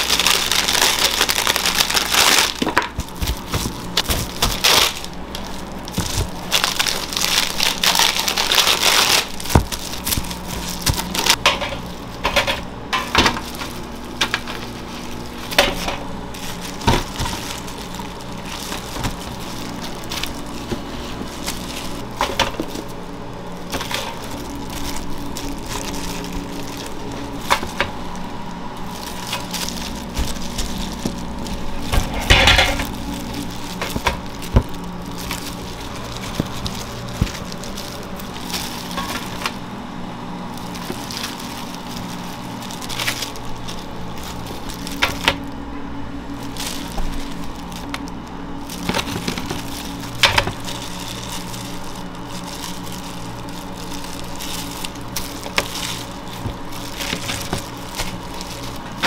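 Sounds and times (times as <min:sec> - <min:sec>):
equipment hum: 0:00.0 - 0:59.0
utensils and dishes clinking: 0:29.0 - 0:37.8.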